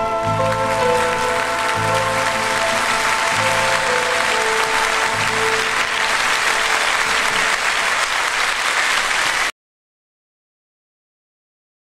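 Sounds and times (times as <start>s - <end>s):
held music notes: 0.0s - 7.8s
audience applauding: 0.0s - 9.5s.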